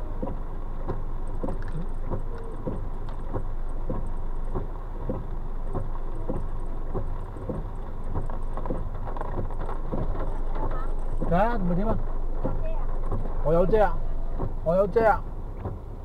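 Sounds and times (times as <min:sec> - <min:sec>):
heavy rain on a car: 0:00.0 - 0:16.0.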